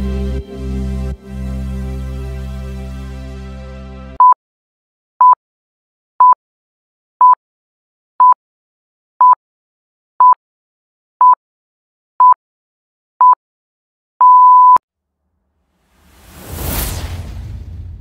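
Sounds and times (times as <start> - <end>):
electronic countdown beeps: 4.2 - 4.4, 14.2 - 14.8
whoosh sound effect: 15.8 - 18.0.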